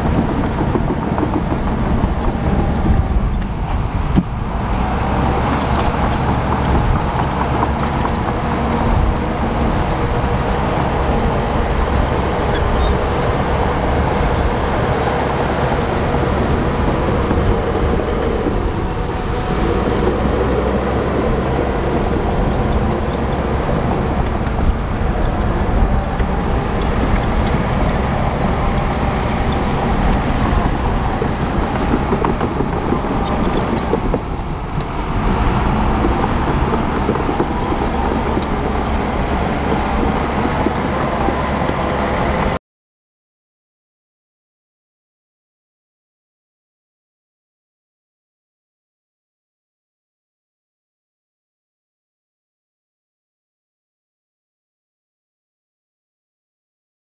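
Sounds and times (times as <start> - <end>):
diesel engine running: 0.0 - 42.6.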